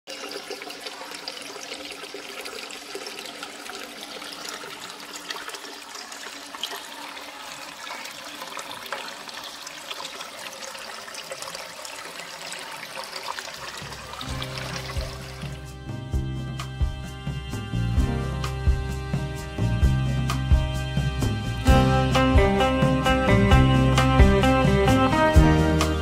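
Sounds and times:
water trickling over rocks: 0.1 - 15.6.

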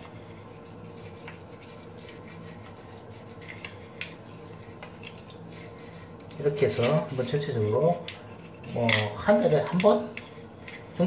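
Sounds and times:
brush scrubbing a drain: 0.0 - 11.0
steady low hum: 0.0 - 11.0.

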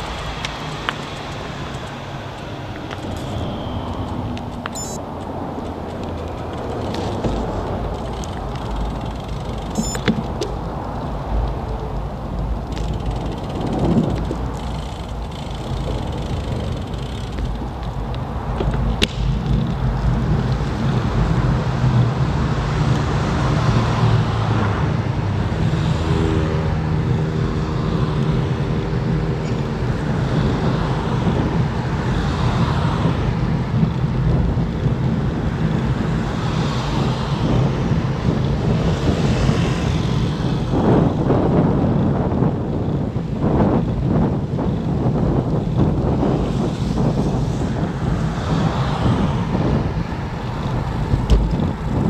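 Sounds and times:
cars going by: 0.0 - 52.0
tyre and road noise: 0.0 - 52.0
wind rumbling on microphone: 0.0 - 52.0.

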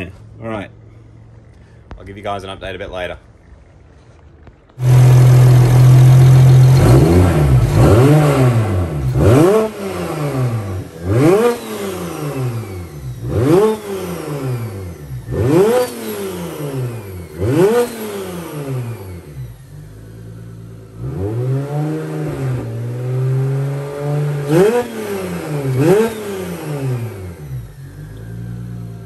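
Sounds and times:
car engine idling and revving: 3.3 - 29.0.

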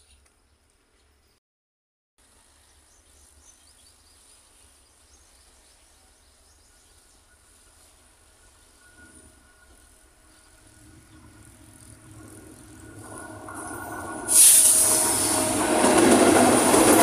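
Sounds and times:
faint bird chirps: 2.6 - 12.0
low rumble: 10.6 - 15.7.

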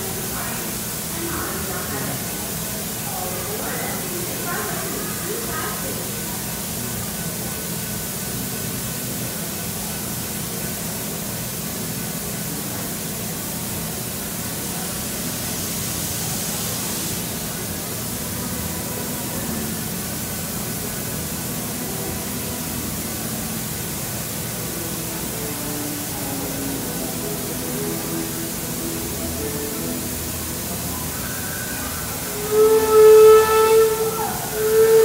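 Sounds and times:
steam hissing from locomotive: 0.0 - 35.0.

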